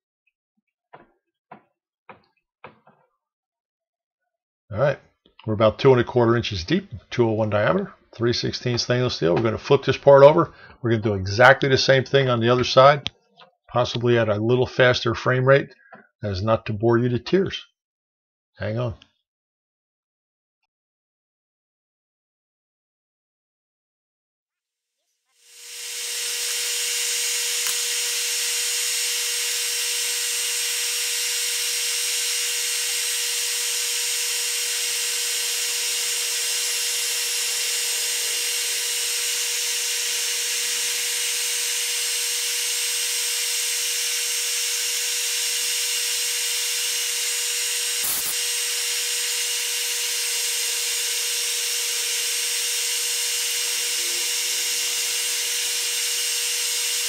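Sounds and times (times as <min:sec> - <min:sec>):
metal lathe whining: 0:25.4 - 0:57.0.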